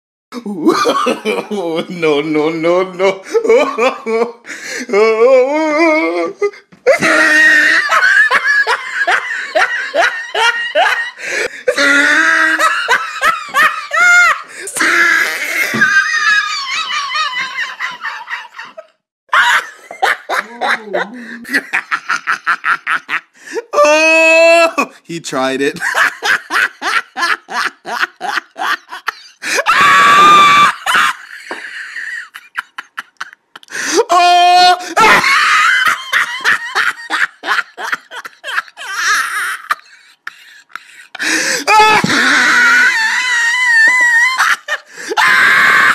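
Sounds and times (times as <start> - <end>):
person laughing hard: 0.4 - 2.1, 3.0 - 24.9, 25.8 - 45.9
loud scream: 6.9 - 8.1, 13.8 - 17.8, 29.5 - 31.2, 33.9 - 36.5, 41.6 - 45.9.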